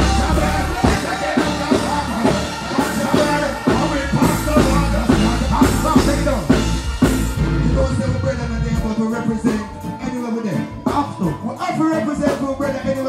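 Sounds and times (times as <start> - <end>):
person singing: 0.0 - 13.0
reggae band drum and bass: 0.0 - 13.0.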